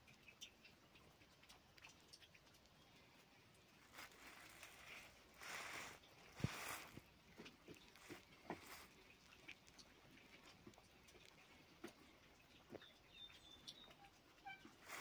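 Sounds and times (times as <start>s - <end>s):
hen rustling in nest straw: 3.8s - 9.9s, 14.7s - 15.0s.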